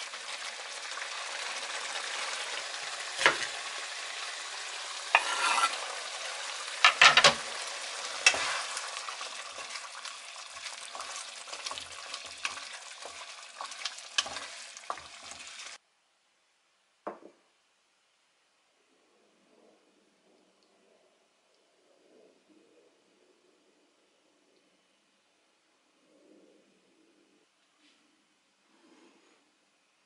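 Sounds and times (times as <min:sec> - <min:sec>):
fish sizzling in frying pan: 0:00.0 - 0:15.8.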